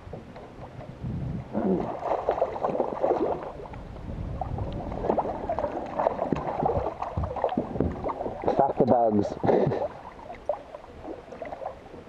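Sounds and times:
water slapping and sloshing: 0.0s - 12.0s
fish splashing at surface: 1.8s - 3.7s.

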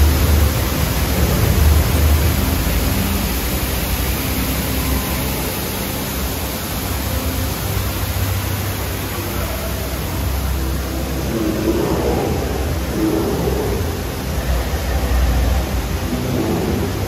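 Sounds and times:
low rumble: 0.0s - 4.2s, 10.6s - 17.0s
steady rushing noise: 0.0s - 17.0s.

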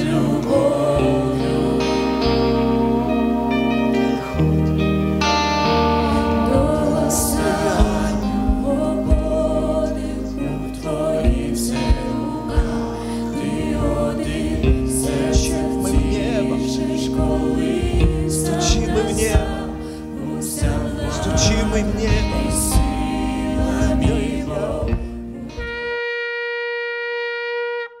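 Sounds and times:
person singing: 0.0s - 4.4s, 5.6s - 26.0s
keyboard: 0.0s - 25.8s
electric guitar: 0.0s - 28.0s
drum kit with cymbals: 11.0s - 20.0s
held note: 21.2s - 28.0s.

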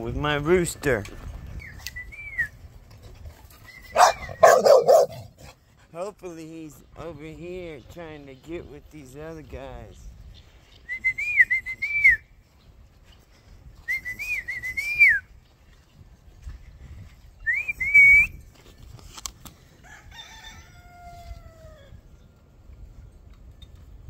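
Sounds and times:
person whistling: 10.9s - 12.2s, 13.9s - 15.3s, 17.4s - 18.4s
rooster crowing: 19.8s - 22.0s.

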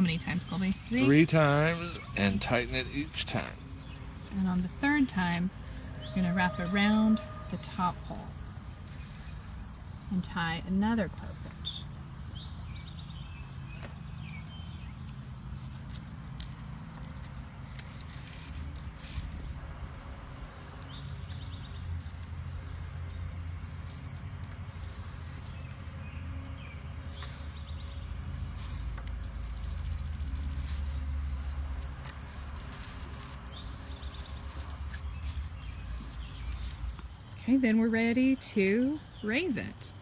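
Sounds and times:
bird chirp: 0.0s - 9.6s, 11.2s - 15.8s, 24.8s - 31.8s, 32.6s - 40.0s
rope scratching: 0.0s - 12.0s, 13.8s - 37.7s.

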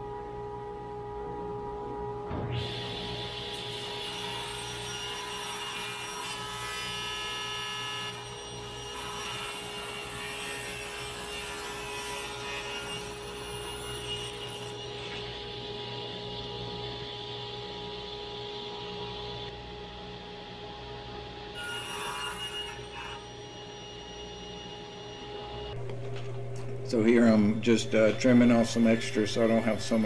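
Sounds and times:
table saw cutting wood: 2.5s - 19.5s, 21.4s - 25.7s
saw motor humming: 21.4s - 30.0s.

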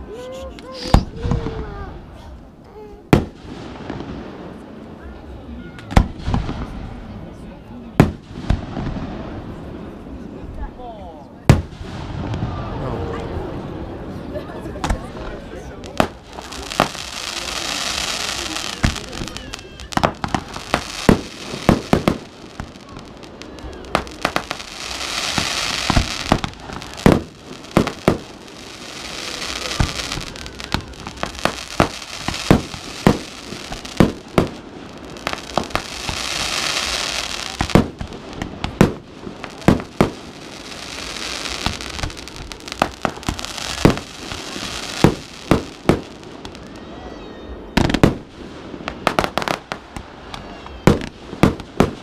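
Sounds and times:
fireworks bangs: 0.4s - 2.4s, 3.0s - 10.4s, 11.4s - 52.0s
hissing crackle: 15.7s - 47.0s.

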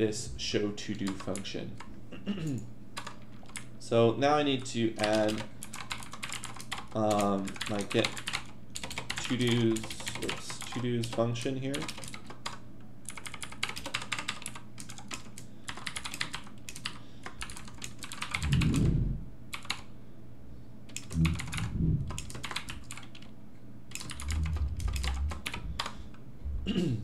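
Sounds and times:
typing on a keyboard: 0.9s - 1.9s, 3.0s - 3.7s, 5.0s - 18.9s, 19.5s - 19.9s, 20.9s - 23.3s, 23.9s - 25.9s
brief low sounds: 18.4s - 19.3s, 21.1s - 22.1s.

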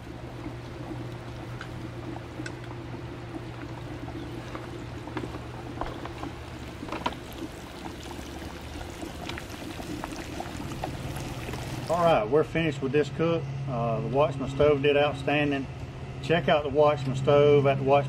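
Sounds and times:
fish deep-frying in oil: 0.0s - 12.0s.

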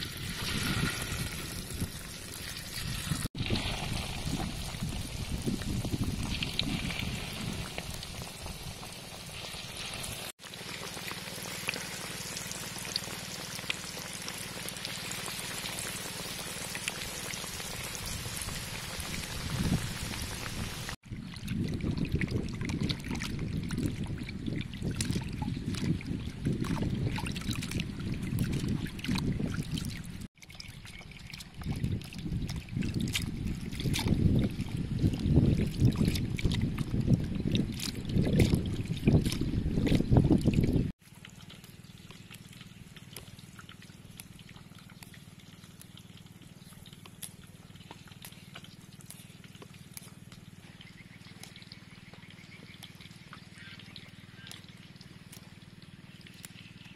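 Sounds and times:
fish deep-frying sizzle: 0.0s - 21.0s
water sloshing and splashing: 0.0s - 56.9s.

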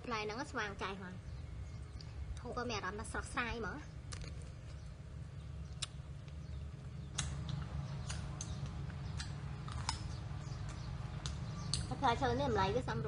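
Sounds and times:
steady low hum: 0.0s - 13.0s
wet chewing clicks: 4.0s - 5.0s, 5.6s - 12.0s.

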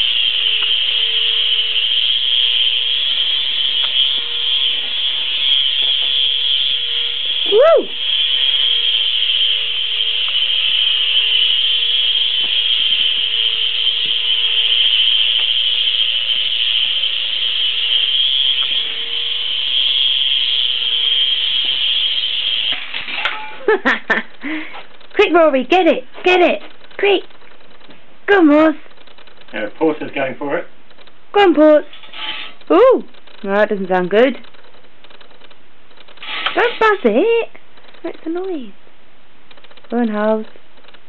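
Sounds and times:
toy helicopter motor whine: 0.0s - 24.6s, 36.1s - 37.2s.

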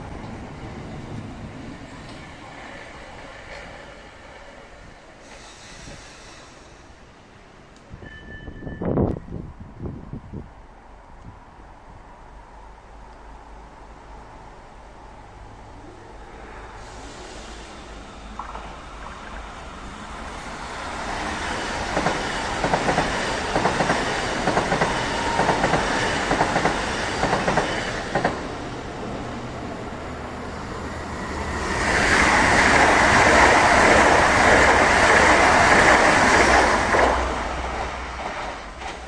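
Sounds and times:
train rushing past: 12.2s - 39.0s
train wheels clattering over rail joints: 21.8s - 28.5s.

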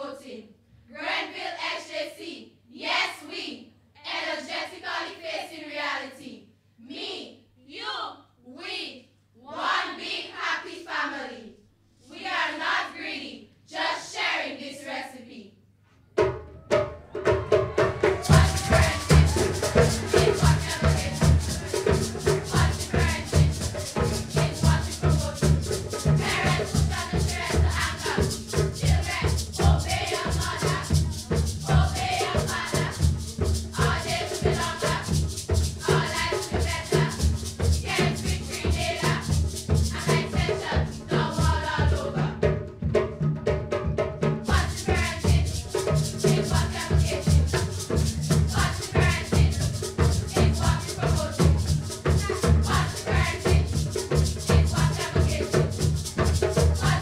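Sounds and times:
girls singing together: 0.0s - 15.5s, 17.8s - 42.6s, 44.4s - 57.0s
girls speaking in unison: 5.3s - 11.5s
hand drum beat: 16.2s - 57.0s
rattle keeping time: 18.2s - 36.8s.

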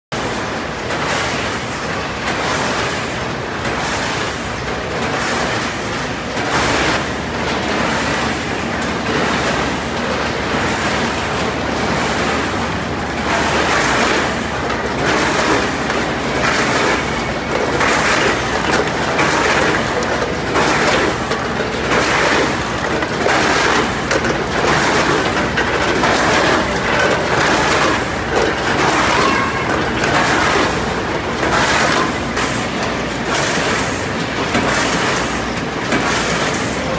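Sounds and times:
steady machine hum: 0.2s - 36.9s
hopper gates opening and closing: 7.8s - 33.7s.

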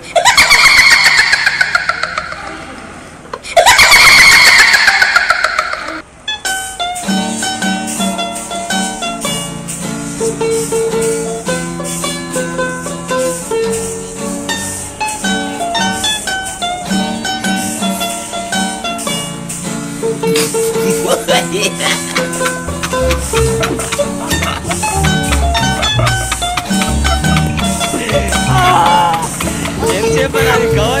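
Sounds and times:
instrumental music with short notes: 6.2s - 20.8s, 21.6s - 31.0s.

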